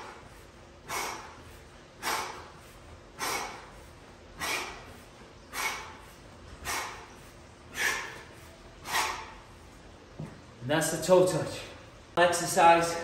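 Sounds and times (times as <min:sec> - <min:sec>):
man's forceful exhalations: 0:00.0 - 0:09.4.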